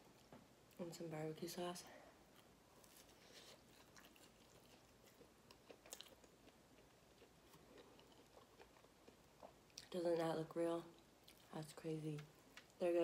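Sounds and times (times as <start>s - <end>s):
biting and chewing food: 2.3s - 10.0s.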